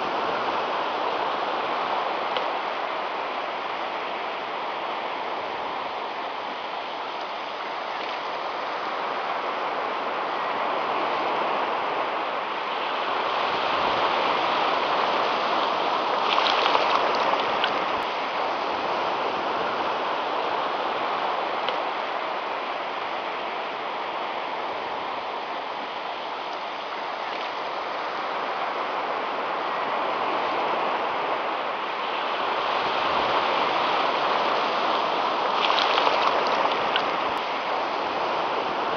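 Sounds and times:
surf breaking on sandy beach: 0.0s - 22.9s, 27.7s - 38.9s.

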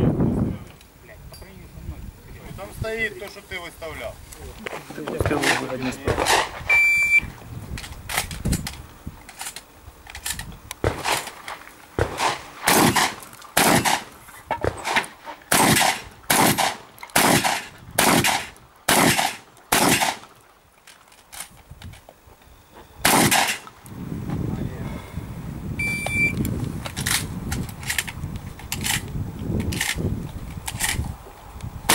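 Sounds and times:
shotgun shots: 5.2s - 6.6s, 10.8s - 20.3s, 23.0s - 23.7s
shot timer beep: 6.7s - 7.3s, 25.8s - 26.4s.

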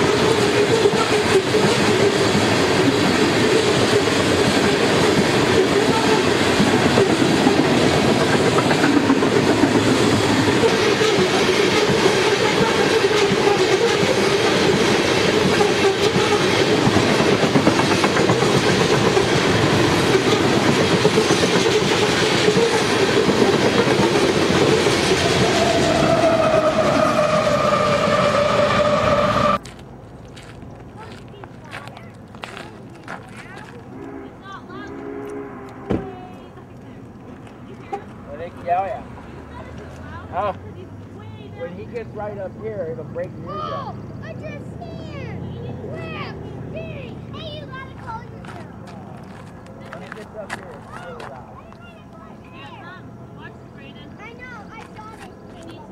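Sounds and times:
freight train rolling past: 0.0s - 30.2s, 33.7s - 55.9s
locomotive air horn blast: 33.9s - 36.1s.

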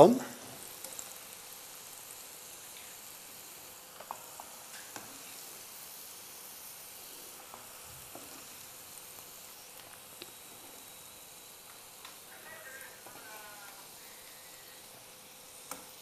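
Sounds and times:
squid deep-frying in hot oil: 0.0s - 16.0s.

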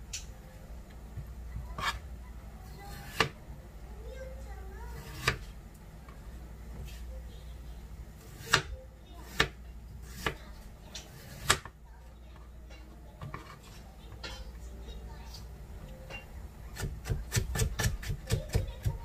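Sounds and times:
knife cutting on plastic board: 1.7s - 2.0s, 5.0s - 5.5s, 11.0s - 11.7s, 16.7s - 19.0s.

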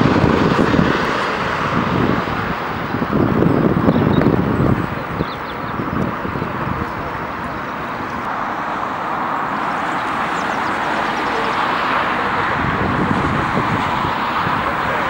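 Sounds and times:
jet airliner engine rush: 0.0s - 15.0s.

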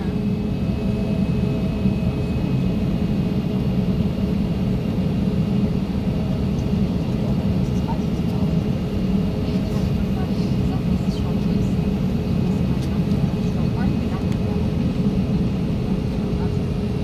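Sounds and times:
low rumble of aircraft engines: 0.0s - 17.0s.

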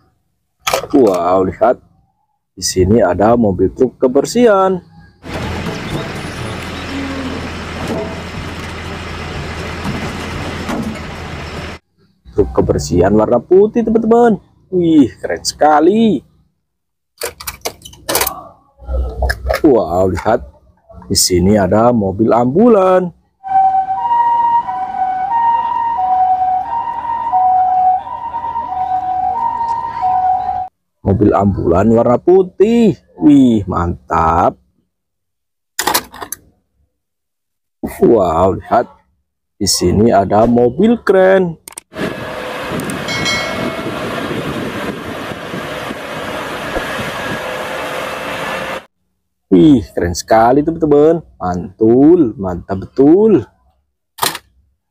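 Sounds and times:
two-tone ambulance siren: 4.9s - 9.7s, 23.4s - 30.7s
crane truck diesel engine: 5.2s - 11.8s, 42.0s - 48.9s
high whine: 42.0s - 48.9s.

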